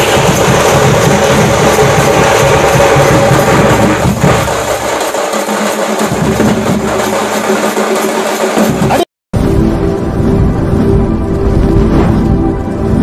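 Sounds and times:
deep bass drum: 0:00.0 - 0:05.0, 0:06.0 - 0:07.4
street drum band: 0:00.0 - 0:09.1.

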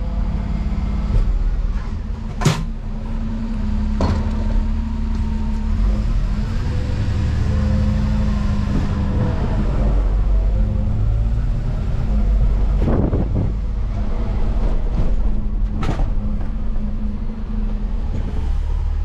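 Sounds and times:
diesel lorry engine running: 0:00.0 - 0:19.0.

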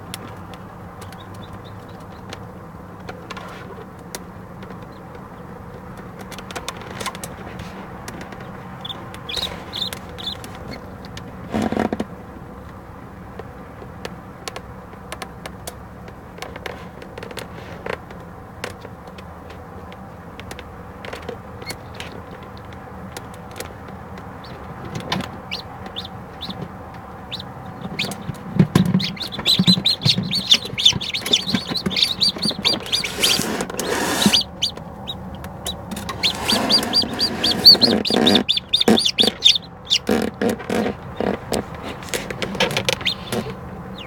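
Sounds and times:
soft thumps of chicks moving: 0:00.1 - 0:12.1, 0:16.1 - 0:44.0
chicks peeping: 0:00.2 - 0:02.5, 0:03.3 - 0:11.4, 0:21.6 - 0:44.0
incubator hum: 0:07.8 - 0:11.5, 0:23.5 - 0:44.0.

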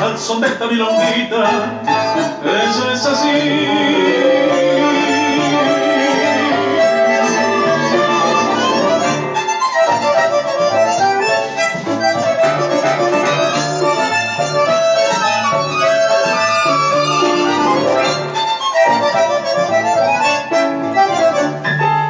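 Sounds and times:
accordion melody: 0:00.0 - 0:22.0
bouncing bass line: 0:03.3 - 0:09.4, 0:11.8 - 0:19.8.

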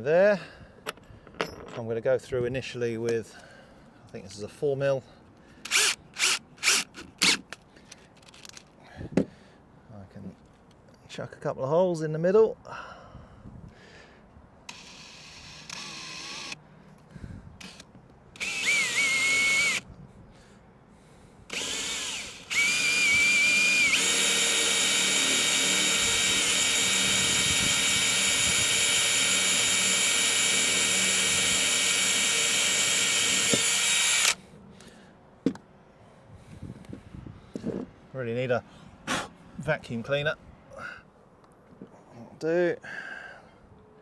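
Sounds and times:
cordless drill motor: 0:05.6 - 0:07.4, 0:14.7 - 0:16.6, 0:17.6 - 0:19.8, 0:21.5 - 0:34.4.

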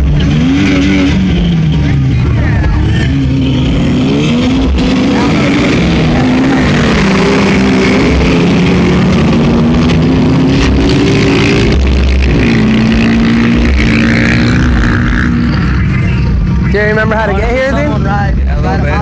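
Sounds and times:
off-road vehicle engines revving: 0:00.0 - 0:19.0
thick rushing noise: 0:00.0 - 0:19.0.

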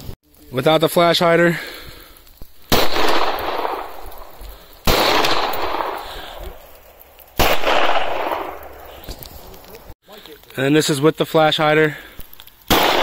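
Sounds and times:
pistol shots with echo: 0:02.7 - 0:04.0, 0:04.8 - 0:06.1, 0:07.4 - 0:08.8, 0:12.7 - 0:13.0.

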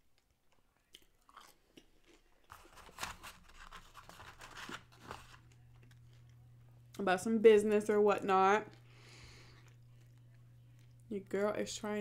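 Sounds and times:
faint chewing: 0:00.0 - 0:02.9, 0:05.2 - 0:07.0, 0:08.6 - 0:11.6
cardboard carton crackling: 0:02.5 - 0:05.4.

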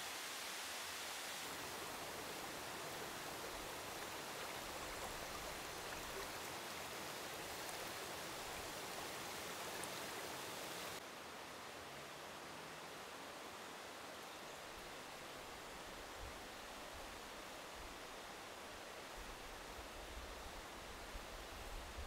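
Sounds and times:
stream water rushing: 0:00.0 - 0:14.1.

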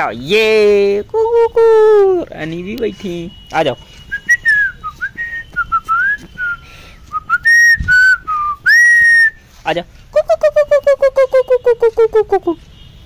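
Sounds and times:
person whistling: 0:04.1 - 0:09.4.

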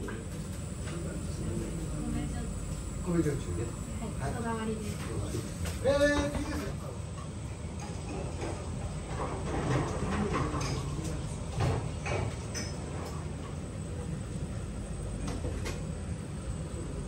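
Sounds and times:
low room rumble: 0:00.0 - 0:17.0.

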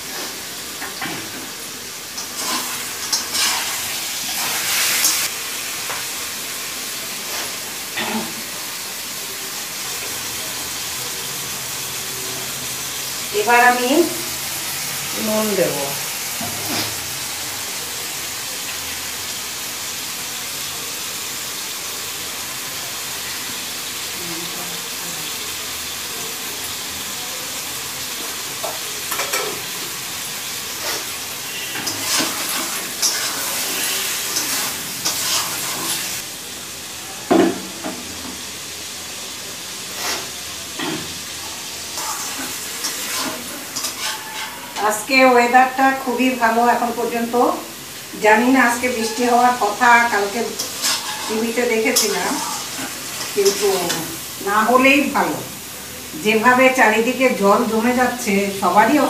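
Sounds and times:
chicken sizzling in pan: 0:00.0 - 0:59.0
metal spatula scraping pan: 0:02.4 - 0:05.3, 0:30.8 - 0:36.2, 0:39.9 - 0:41.0, 0:42.0 - 0:45.1, 0:48.7 - 0:54.1.

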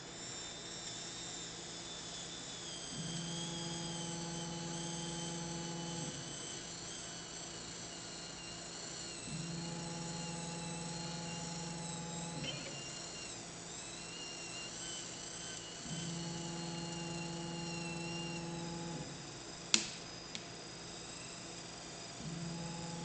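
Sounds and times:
stepper motors humming: 0:00.2 - 0:20.3, 0:20.9 - 0:23.0
sharp click: 0:19.7 - 0:20.5.

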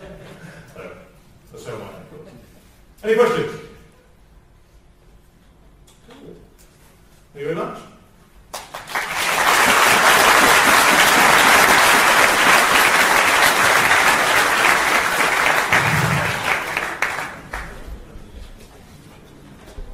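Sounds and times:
audience applauding: 0:08.5 - 0:17.9.

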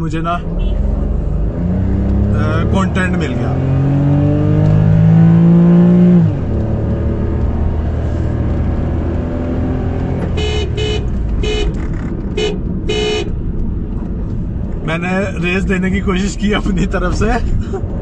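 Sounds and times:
car engine accelerating: 0:00.0 - 0:18.0
car horn toots: 0:10.2 - 0:13.4.

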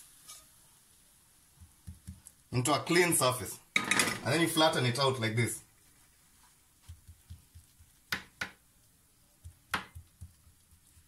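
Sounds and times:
wooden spoon patting sticky mixture: 0:01.4 - 0:02.7, 0:05.3 - 0:11.0
sharp taps on countertop: 0:06.8 - 0:08.6, 0:09.4 - 0:11.0.

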